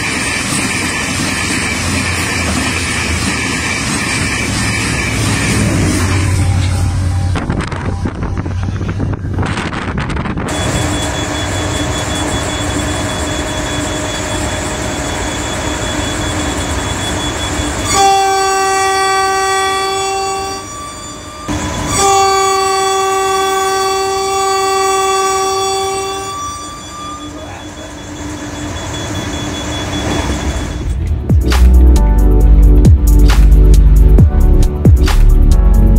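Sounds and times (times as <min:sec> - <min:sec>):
train running noise: 0:00.0 - 0:35.9
train horn blasts: 0:05.5 - 0:09.1, 0:17.7 - 0:27.6.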